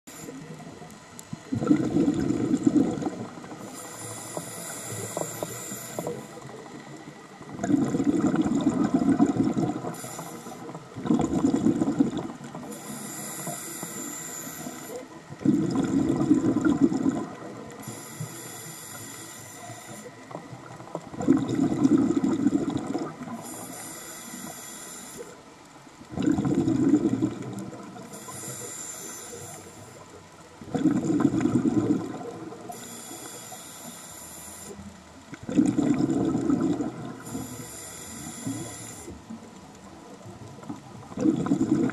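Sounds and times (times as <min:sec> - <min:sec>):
regulator inhale hiss: 0:00.1 - 0:01.3, 0:03.0 - 0:07.0, 0:08.3 - 0:10.9, 0:12.4 - 0:15.7, 0:16.9 - 0:20.4, 0:22.0 - 0:25.5, 0:27.7 - 0:30.2, 0:32.5 - 0:35.0, 0:37.1 - 0:39.4
exhaled air bubbling: 0:00.2 - 0:24.6, 0:26.0 - 0:28.8, 0:29.4 - 0:33.4, 0:34.6 - 0:41.9.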